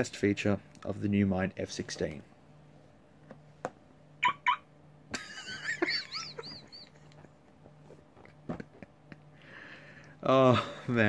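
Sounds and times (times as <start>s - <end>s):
short electronic chirps: 4.2s - 4.6s
warbling electronic tones: 4.2s - 4.7s.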